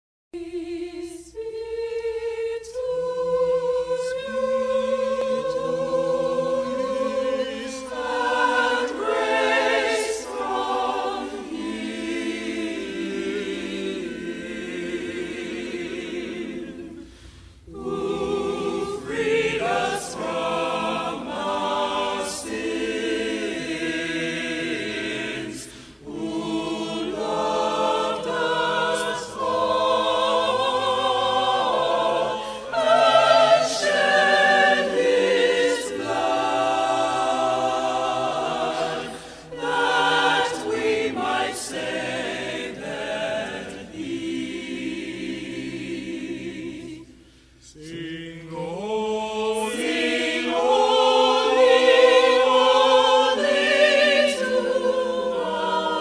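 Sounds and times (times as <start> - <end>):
choir singing unaccompanied: 0.4 - 56.0
singers breathing: 16.9 - 17.7, 25.6 - 26.1, 32.4 - 32.7, 39.1 - 39.6, 47.1 - 47.8.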